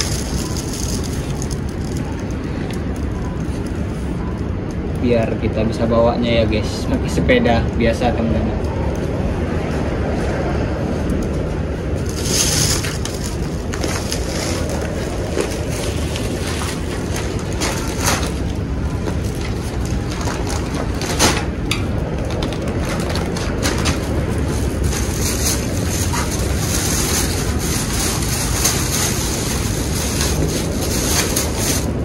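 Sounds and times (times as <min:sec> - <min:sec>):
plastic bags crinkling: 0:00.0 - 0:03.2, 0:11.9 - 0:32.0.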